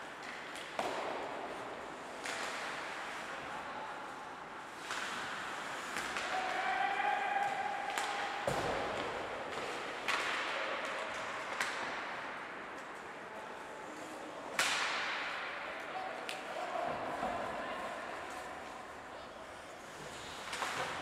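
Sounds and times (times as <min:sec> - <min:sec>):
hockey sticks and puck clacking: 0:00.0 - 0:03.5, 0:04.4 - 0:13.2, 0:13.9 - 0:21.0
thud against rink boards: 0:00.6 - 0:03.0, 0:07.4 - 0:12.2, 0:14.6 - 0:15.6, 0:20.1 - 0:21.0.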